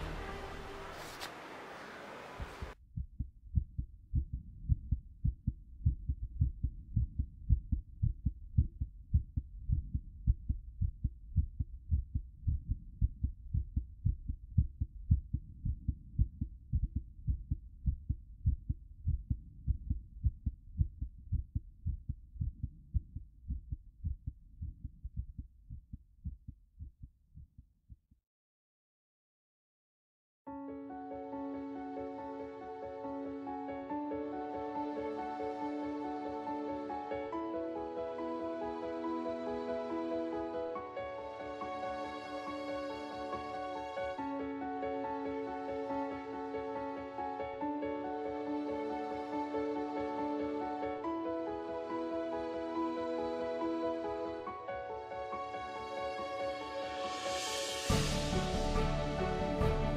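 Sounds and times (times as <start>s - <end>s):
muffled heartbeat: 2.8s - 28.2s.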